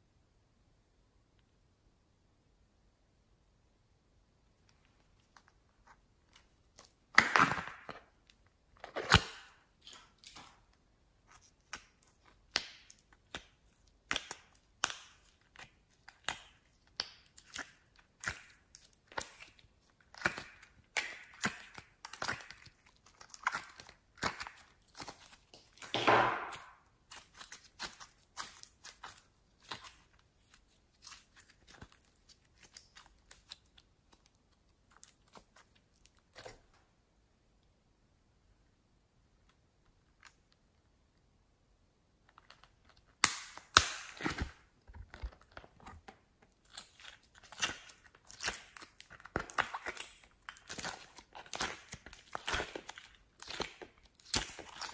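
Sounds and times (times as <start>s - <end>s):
slime squelch: 4.6s - 36.8s, 42.1s - 54.9s
sticky slime pops and crackles: 6.7s - 8.0s, 11.6s - 30.0s, 43.0s - 45.5s, 46.6s - 54.9s.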